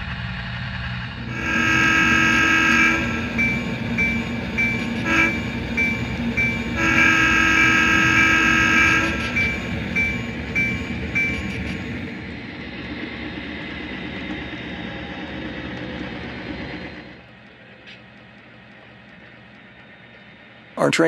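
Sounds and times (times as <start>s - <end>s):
engine running rumble: 0.0s - 20.8s
locomotive air horn: 1.2s - 9.8s
locomotive bell ringing: 1.2s - 12.2s.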